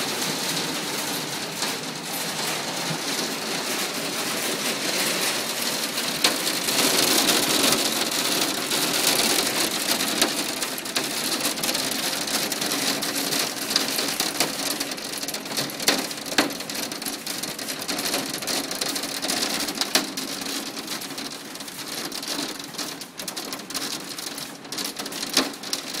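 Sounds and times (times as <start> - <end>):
hailstones clattering: 0.0 - 26.0.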